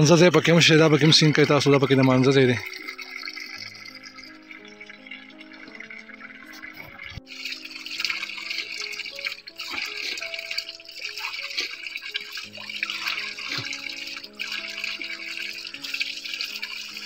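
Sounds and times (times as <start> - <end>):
background music of sustained notes: 0.0 - 17.0
water splashing onto rocks: 1.0 - 17.0.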